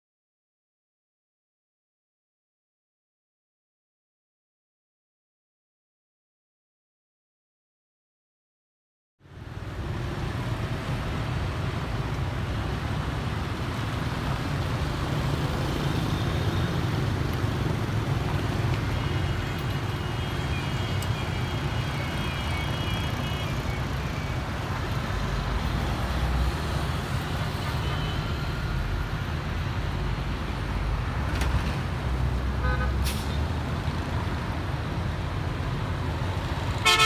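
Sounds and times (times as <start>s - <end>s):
cars and motorbikes driving: 9.2s - 37.0s.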